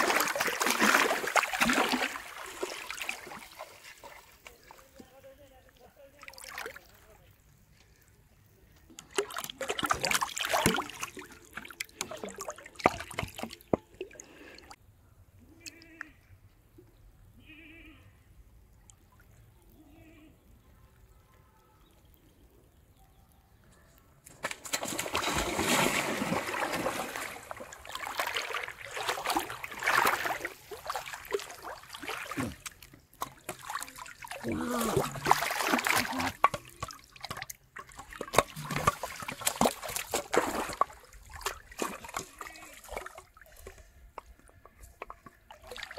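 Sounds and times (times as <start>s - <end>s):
float splashing in river: 0.0s - 5.0s, 9.0s - 14.7s, 24.4s - 43.7s, 45.0s - 45.9s
person wading through water: 0.0s - 5.1s, 8.9s - 14.8s, 24.6s - 45.9s.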